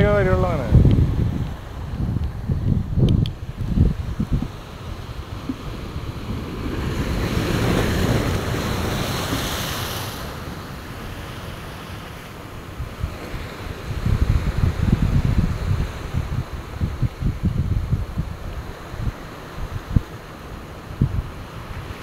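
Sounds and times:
surf breaking on rocks: 0.0s - 16.5s
wind on microphone: 0.0s - 22.0s.

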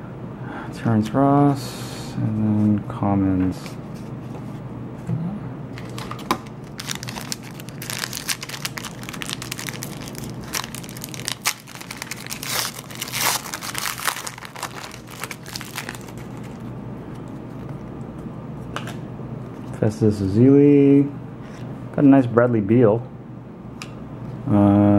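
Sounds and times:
foil wrapper tearing and crinkling: 6.4s - 16.7s.

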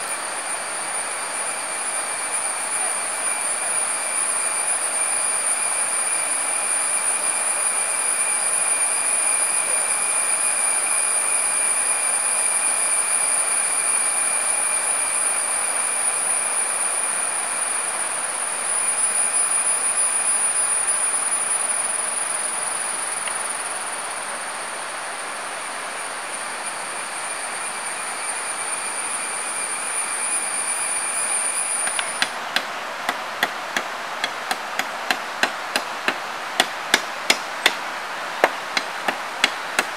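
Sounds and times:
forest insects droning: 14.0s - 39.9s
machete chopping wood: 31.9s - 37.8s, 38.4s - 39.9s.

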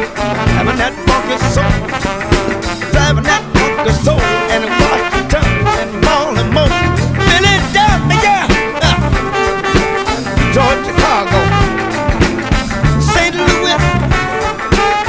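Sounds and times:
background music with steady beat: 0.0s - 15.0s.

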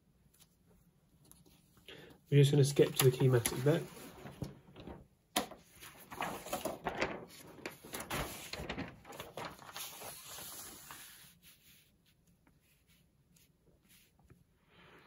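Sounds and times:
paper rustling and crackling: 2.4s - 14.2s.

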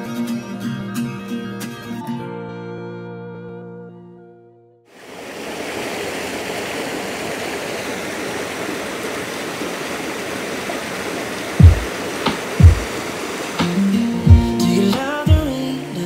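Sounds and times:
river water rushing over boulders: 5.0s - 16.0s.

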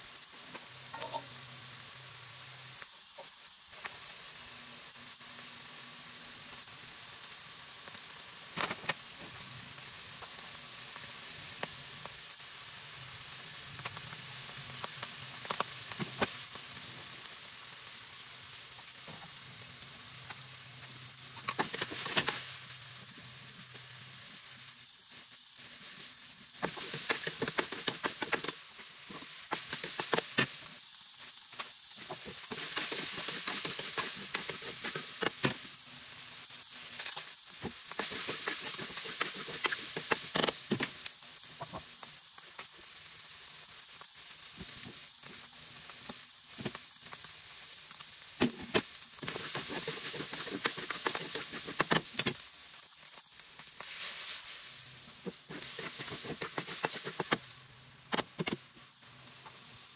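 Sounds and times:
meat sizzling in a wok: 0.0s - 59.9s
metal spatula scraping a pan: 0.9s - 1.3s, 32.0s - 35.4s, 49.2s - 52.3s, 55.3s - 57.4s.

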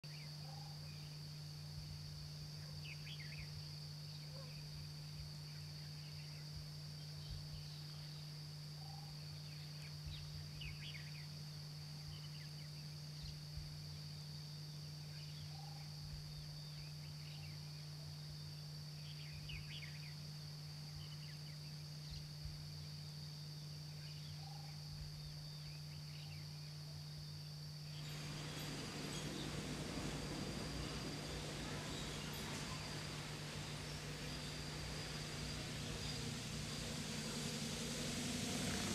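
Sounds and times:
faint bird chirps: 0.1s - 1.2s, 5.5s - 11.4s, 15.0s - 18.2s, 23.9s - 26.8s, 27.9s - 38.9s
steady low hum: 27.6s - 38.9s
high-pitched whine: 27.9s - 38.9s
loud hiss: 27.9s - 38.9s.

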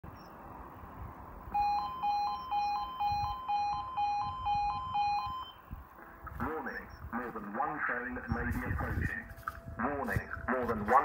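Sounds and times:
two-tone crossing alarm: 1.5s - 5.6s, 8.2s - 11.0s.

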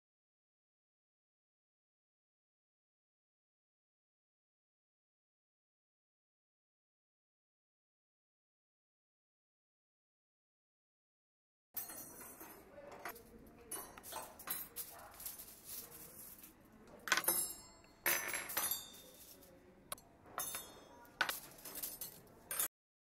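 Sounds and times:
dishes and cutlery clinking: 11.8s - 22.7s.

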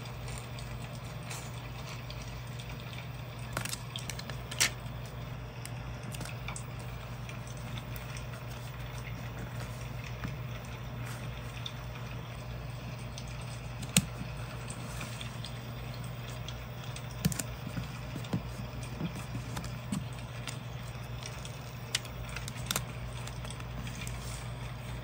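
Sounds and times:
steady low hum: 0.0s - 25.0s
paper rustling: 17.1s - 25.0s.

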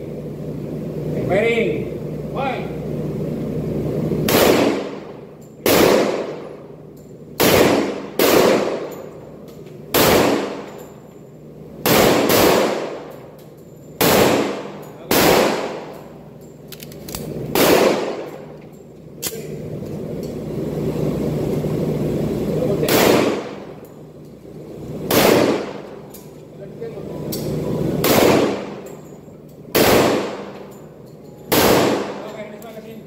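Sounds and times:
pistol shots echoing indoors: 4.2s - 6.7s, 7.4s - 9.2s, 9.9s - 11.0s, 11.8s - 13.4s, 14.0s - 18.6s, 22.8s - 23.9s, 25.1s - 26.1s, 27.4s - 30.8s, 31.4s - 32.6s.

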